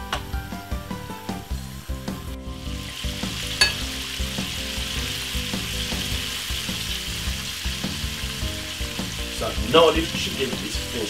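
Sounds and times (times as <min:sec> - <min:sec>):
chicken sizzling in hot oil: 0:00.2 - 0:11.0
metal tongs clinking on pan: 0:03.6 - 0:03.8.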